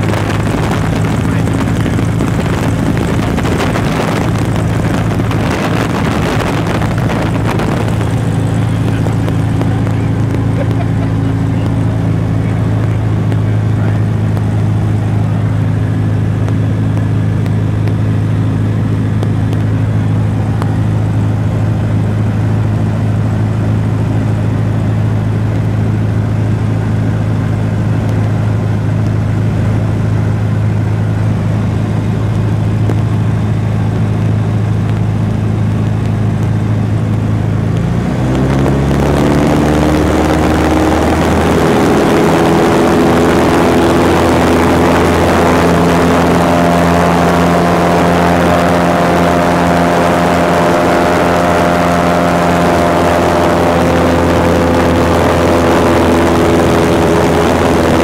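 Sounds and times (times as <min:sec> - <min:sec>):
wind rushing: 0:00.0 - 0:10.5
propeller airplane engine droning: 0:00.0 - 0:58.0.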